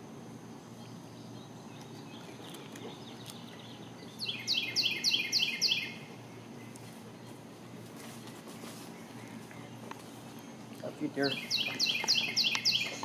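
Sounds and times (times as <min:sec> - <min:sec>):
low background hum: 0:00.0 - 0:13.0
songbird singing: 0:00.0 - 0:13.0
faint bird chirps: 0:08.9 - 0:13.0.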